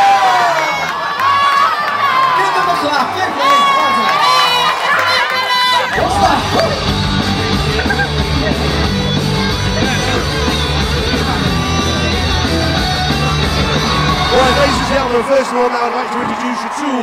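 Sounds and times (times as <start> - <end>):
person shouting: 5.8 - 6.8
loud rock music with singing: 5.9 - 15.2.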